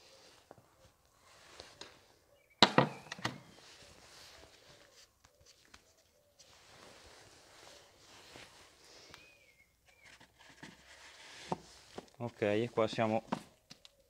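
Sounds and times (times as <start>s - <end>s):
scuffing and rustling: 3.4s - 9.1s.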